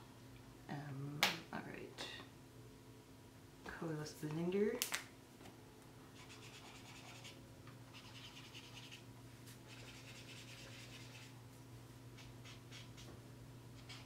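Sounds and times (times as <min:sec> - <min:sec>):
marker scratching on paper: 0:06.2 - 0:09.0, 0:09.7 - 0:11.3.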